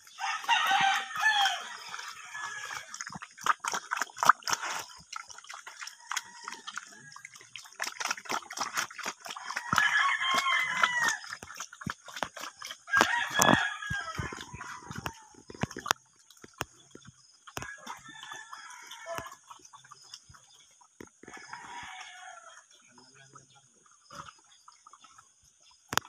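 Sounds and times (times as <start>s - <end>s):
pig smacking and slurping food: 0.0s - 26.0s
rooster crowing: 0.2s - 2.9s, 6.0s - 7.1s, 9.4s - 11.3s, 12.9s - 15.3s, 17.6s - 19.4s, 21.3s - 22.6s.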